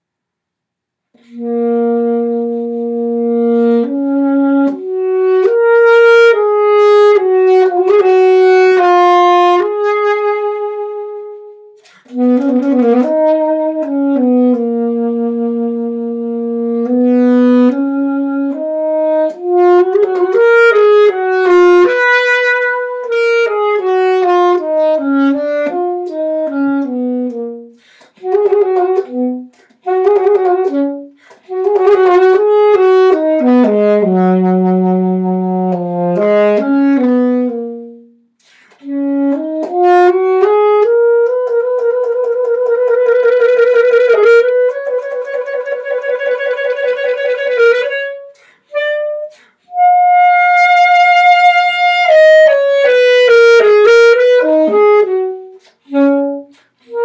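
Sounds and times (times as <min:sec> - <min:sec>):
breath: 0:01.1 - 0:01.4, 0:11.8 - 0:12.2, 0:27.7 - 0:28.2, 0:31.1 - 0:31.5, 0:38.4 - 0:38.8, 0:48.3 - 0:49.7, 0:56.5 - 0:57.0
alto saxophone melody: 0:01.1 - 0:57.0.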